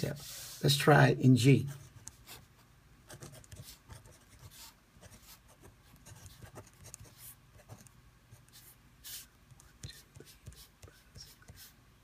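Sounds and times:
pen scratching on paper: 3.1 - 11.7.

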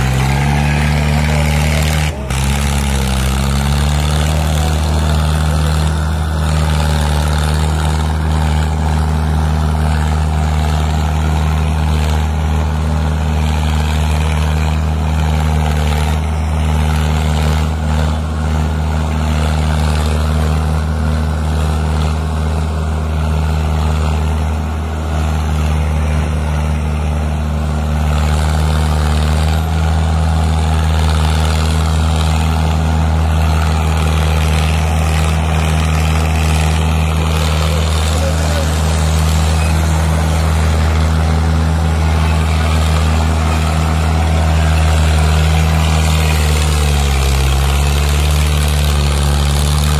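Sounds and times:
tractor diesel engine under load: 0.0 - 49.9.

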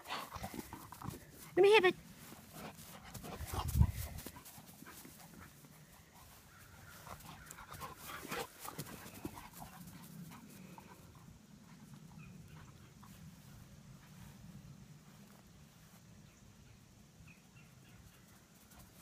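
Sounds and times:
dog panting: 0.0 - 1.6, 2.2 - 13.5
dog running on grass: 0.0 - 11.0.

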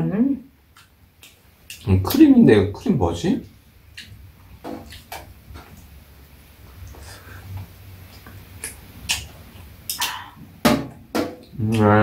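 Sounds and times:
faint low hum: 0.0 - 12.0
clicks of eating and handling dishes: 3.9 - 6.0.

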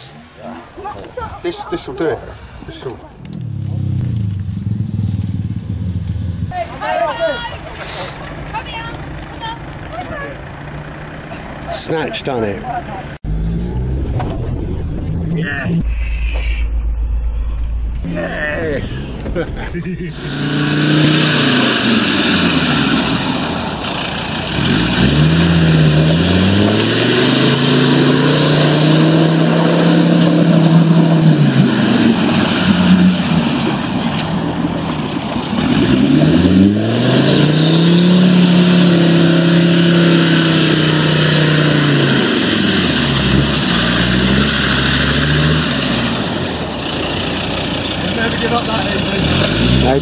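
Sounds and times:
tyres splashing through mud: 6.5 - 14.9, 19.1 - 50.0
engine revving hard: 20.1 - 34.0, 35.6 - 50.0.

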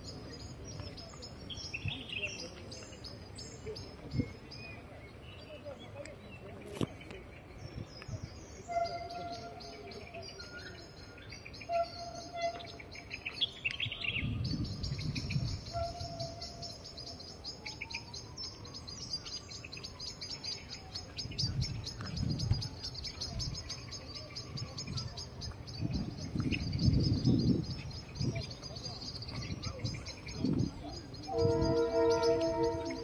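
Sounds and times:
birds chirping and calling: 0.1 - 33.0.

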